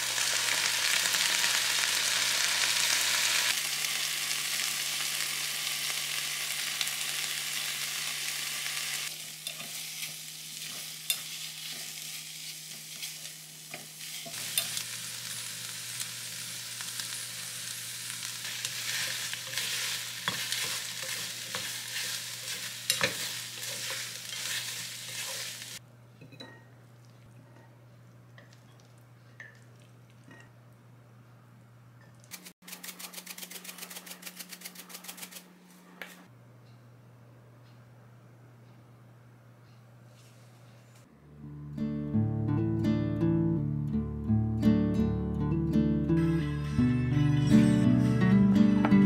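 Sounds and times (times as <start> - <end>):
food sizzling in a frying pan: 0.0 - 25.8
spoon scraping a pan: 9.2 - 14.8, 18.4 - 26.6.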